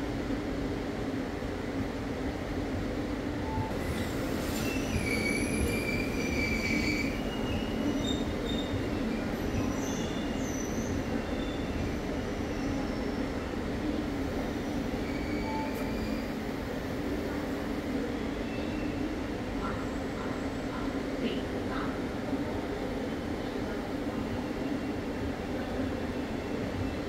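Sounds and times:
train coaches rumbling: 0.0s - 27.0s
wheels squealing on rails: 3.8s - 13.4s, 14.7s - 16.6s.

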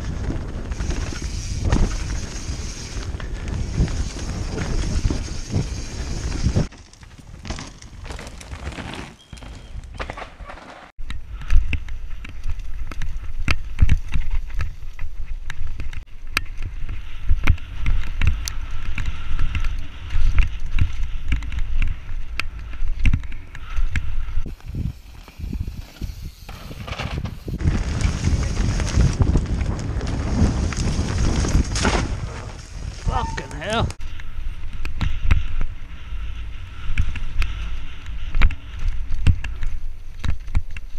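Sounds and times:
wind buffeting microphone: 0.0s - 6.7s, 16.6s - 40.0s
tyres rumbling over dirt: 0.0s - 10.9s, 24.5s - 34.0s
bike knocking and clattering: 0.1s - 32.8s, 33.6s - 40.9s.

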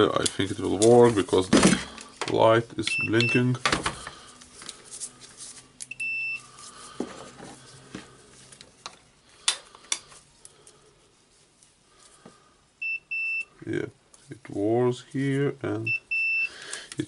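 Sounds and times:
continuity tester beep: 2.9s - 3.5s, 5.9s - 6.5s, 12.8s - 13.5s, 15.8s - 16.5s.

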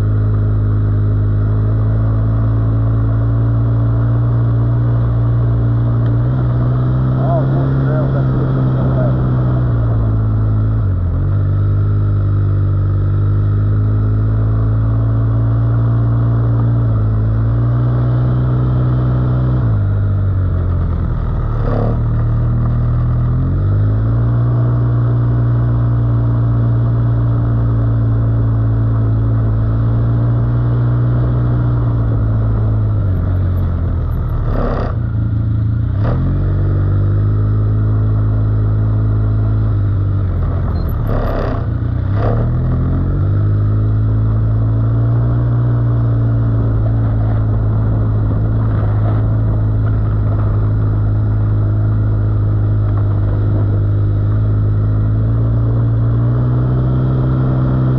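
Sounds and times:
quad bike engine running: 0.0s - 57.9s.

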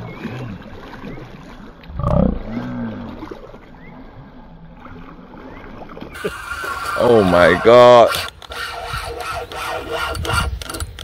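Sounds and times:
fish splashing: 4.8s - 9.8s.

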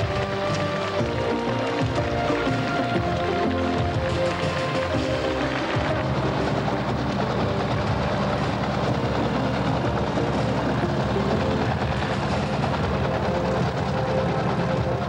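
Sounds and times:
helicopter rotor chopping: 0.0s - 15.0s.

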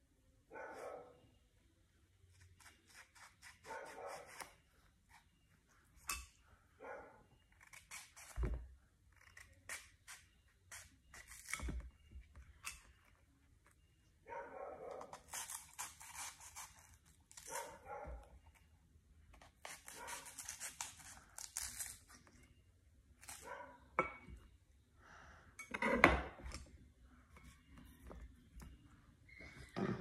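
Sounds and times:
knife scraping fruit skin: 7.5s - 13.2s, 14.9s - 17.8s, 19.3s - 22.4s.

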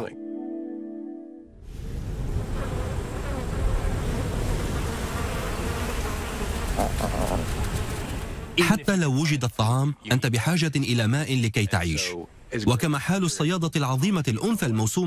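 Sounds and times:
insects buzzing: 2.2s - 8.8s.

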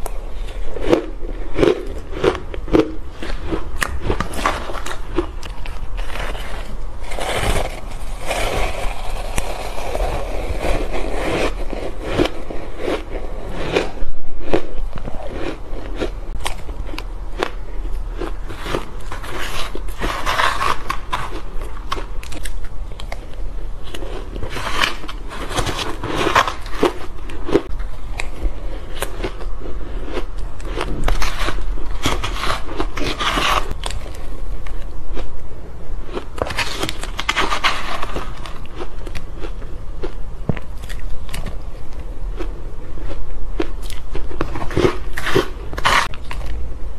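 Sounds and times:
crunching ice: 0.0s - 23.3s, 23.9s - 34.0s.

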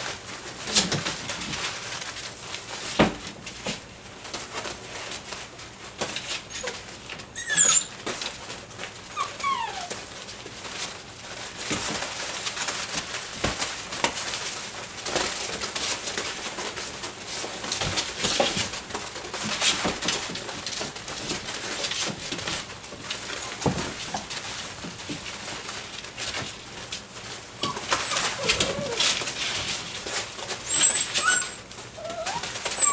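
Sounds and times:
puppies rustling through shavings: 0.0s - 32.9s
puppy whimper: 6.4s - 8.0s, 9.1s - 10.1s, 27.6s - 29.7s, 30.4s - 32.9s
puppy yelp: 6.4s - 8.1s, 9.1s - 10.0s, 27.6s - 29.6s, 30.4s - 32.9s.

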